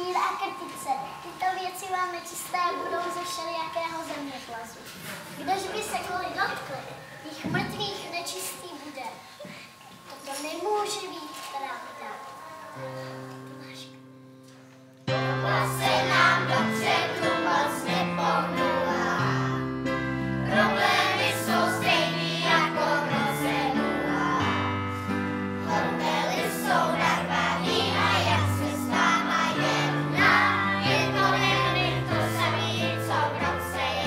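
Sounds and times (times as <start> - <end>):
children's choir singing: 0.0 - 4.1, 10.9 - 14.2, 15.1 - 34.0
keyboard: 10.4 - 34.0.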